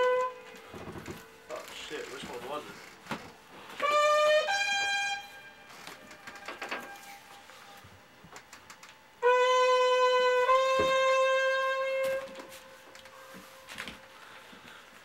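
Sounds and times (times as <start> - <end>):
long held instrumental note: 3.6 - 7.8, 9.2 - 14.6.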